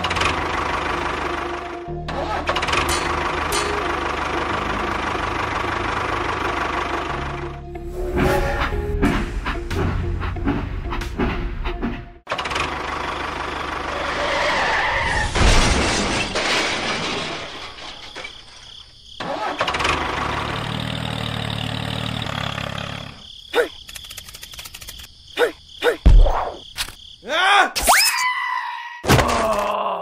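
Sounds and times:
engine running: 0:00.0 - 0:14.3, 0:19.2 - 0:23.2
sharp clicks: 0:23.6 - 0:25.1.

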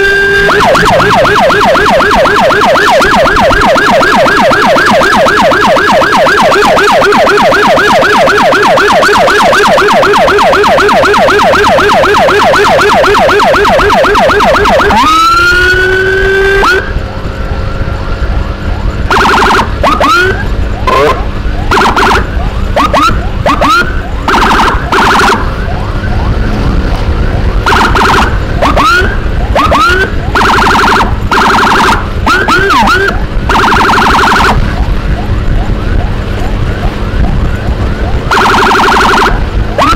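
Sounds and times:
short siren chirps: 0:00.0 - 0:17.0, 0:18.2 - 0:39.9
electronic siren warbling and wailing: 0:00.0 - 0:39.9
engine and road noise: 0:00.0 - 0:39.9.

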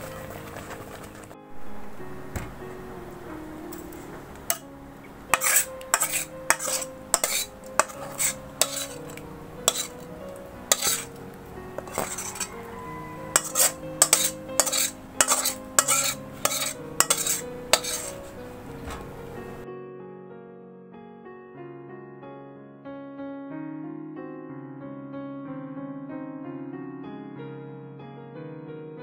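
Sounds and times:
soft piano music: 0:00.0 - 0:29.0
spatula scraping metal pan: 0:03.7 - 0:04.6, 0:05.3 - 0:10.1, 0:10.7 - 0:11.2, 0:11.8 - 0:18.4.

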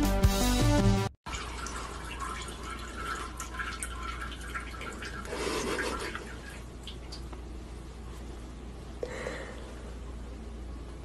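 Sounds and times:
faint trickle into toilet water: 0:01.3 - 0:07.4
steady low hum: 0:02.6 - 0:11.0.

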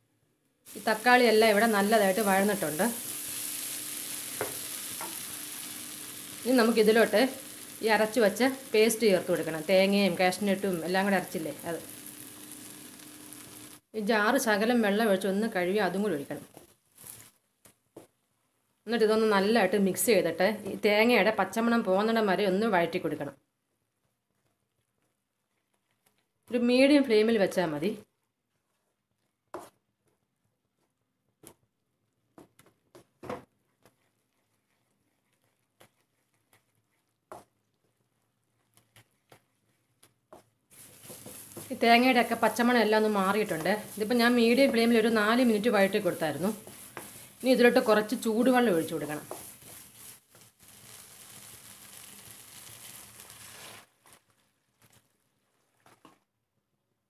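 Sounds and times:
wooden spatula scraping a pan: 0:28.4 - 0:29.8, 0:33.5 - 0:56.2.

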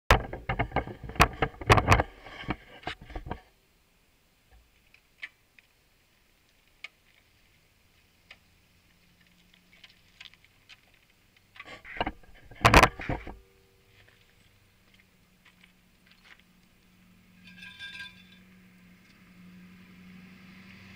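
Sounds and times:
knocks and clatter of handling: 0:00.1 - 0:03.5, 0:09.8 - 0:14.6, 0:17.4 - 0:18.5.

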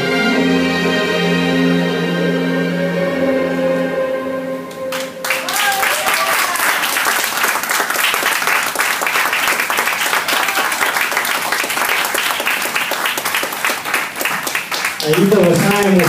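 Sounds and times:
audience clapping: 0:04.9 - 0:16.0.

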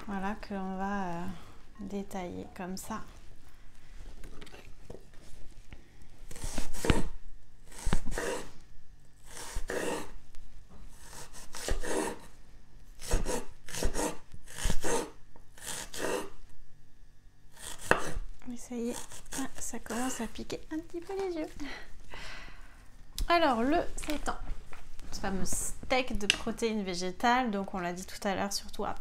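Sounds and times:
knife slicing onion: 0:06.3 - 0:08.6, 0:09.2 - 0:10.2, 0:10.9 - 0:12.3, 0:12.9 - 0:16.4, 0:17.5 - 0:18.3, 0:18.9 - 0:20.2.

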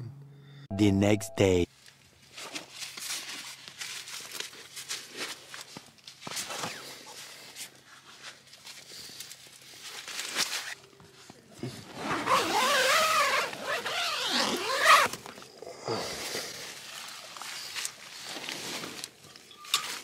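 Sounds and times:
clothing and tent fabric rustling: 0:16.5 - 0:20.0.

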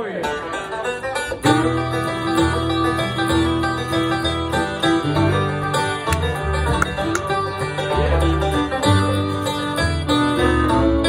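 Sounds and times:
banjo picking: 0:00.0 - 0:11.0
bluegrass band playing: 0:00.0 - 0:11.0.

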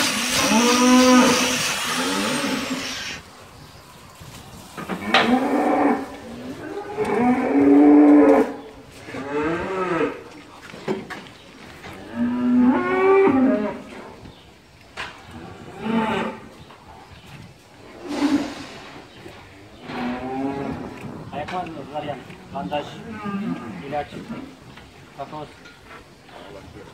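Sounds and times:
cow mooing: 0:00.3 - 0:02.8, 0:05.0 - 0:08.6.

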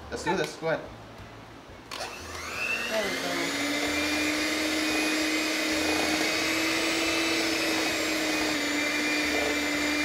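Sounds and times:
electric hand mixer whining: 0:01.9 - 0:10.0.

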